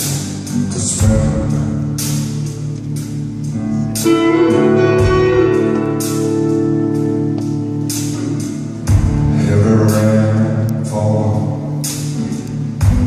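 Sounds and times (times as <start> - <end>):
drum and cymbal hits: 0.0 - 3.2, 7.9 - 10.2, 11.8 - 13.0
electric guitar chord ringing: 4.0 - 8.8.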